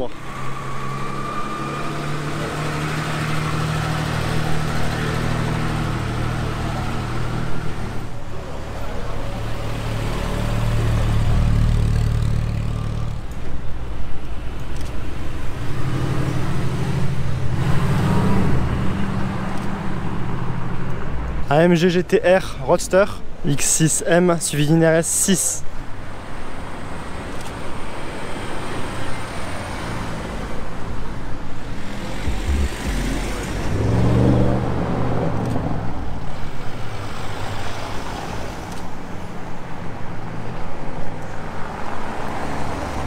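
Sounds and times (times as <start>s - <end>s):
cars driving past: 0.0s - 13.4s, 26.8s - 43.0s.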